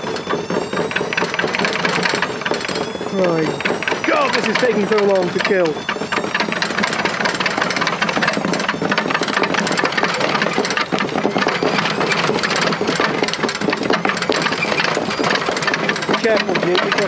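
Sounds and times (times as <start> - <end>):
low motor hum: 0.0 - 17.0
washing machine drum clattering: 0.0 - 17.0.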